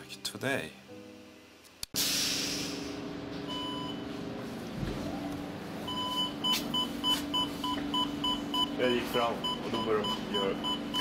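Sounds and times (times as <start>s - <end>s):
brief hiss: 2.0s - 3.0s
electronic lift beeps: 3.5s - 4.0s, 5.9s - 11.0s.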